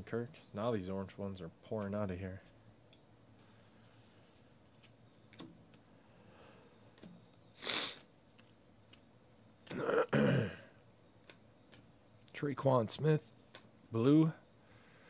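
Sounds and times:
trading cards being shuffled: 4.3s - 5.8s
short sharp sniff: 7.6s - 8.1s
man clearing his throat: 9.7s - 10.7s.

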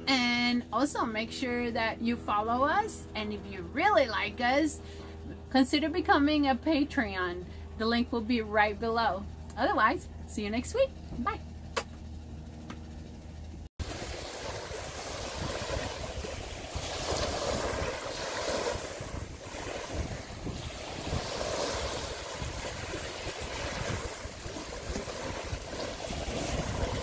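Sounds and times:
wind blowing across microphone: 13.8s - 27.0s.

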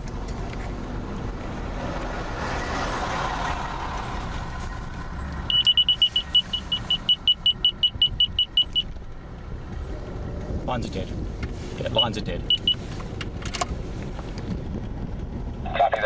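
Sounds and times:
vehicle road and engine noise: 0.0s - 16.0s
rapid electronic beeping: 5.4s - 8.9s.

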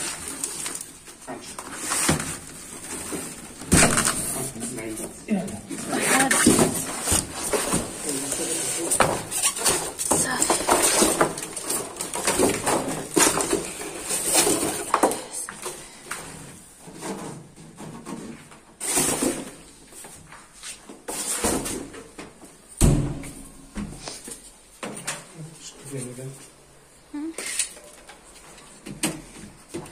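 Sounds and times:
foam packaging scrapes and squeaks: 5.8s - 12.1s
heavy thump on floor: 22.8s - 24.0s.

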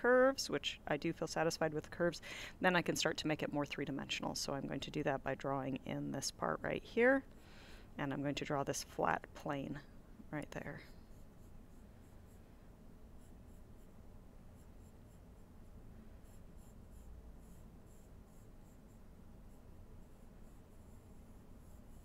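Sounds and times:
pencil scratching on paper: 10.9s - 12.5s, 13.1s - 22.0s.

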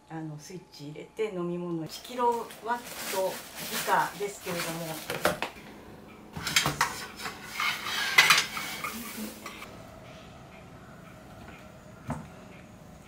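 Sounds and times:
dishes and cutlery clattering: 6.4s - 9.6s.

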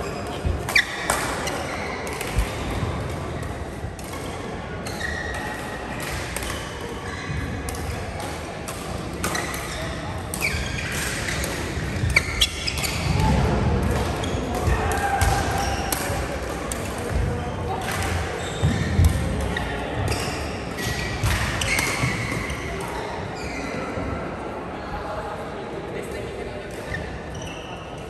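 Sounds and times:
sneakers squeaking on court floor: 4.8s - 5.6s, 9.2s - 14.7s, 17.0s - 23.9s, 26.9s - 27.9s
racket hitting shuttlecock: 10.3s - 22.5s.

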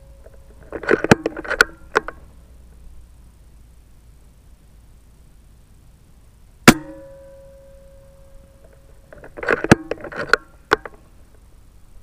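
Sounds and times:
rifle action clicks and clacks: 0.6s - 2.2s
air rifle shot ringing: 6.7s - 7.5s.

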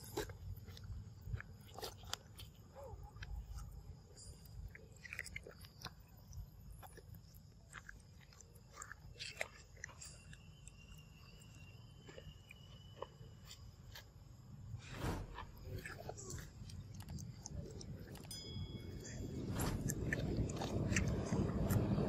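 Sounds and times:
monkey chewing wet fruit: 0.0s - 14.1s, 15.4s - 22.0s
low background rumble: 14.1s - 22.0s.

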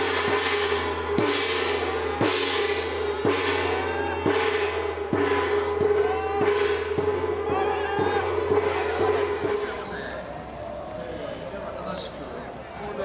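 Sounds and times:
hanging gong: 0.0s - 10.3s
cymbals: 0.0s - 10.5s
drum strikes: 0.0s - 10.5s.

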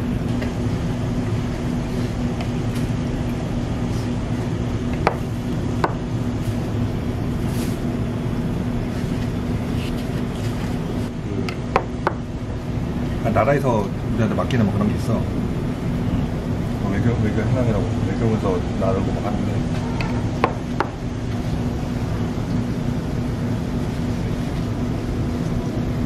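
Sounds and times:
restaurant room noise hum: 0.0s - 26.0s.

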